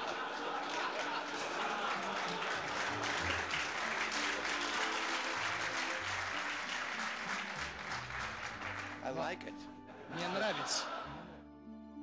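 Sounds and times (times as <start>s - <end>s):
audience applauding: 0.0s - 11.1s
music with held bass notes: 11.0s - 12.0s.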